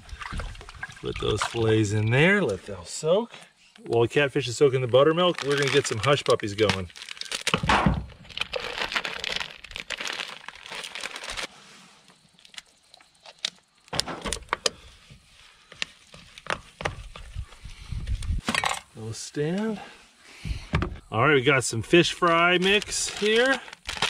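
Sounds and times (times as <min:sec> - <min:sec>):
plastic packet crinkling: 0:04.9 - 0:11.5, 0:22.2 - 0:24.0.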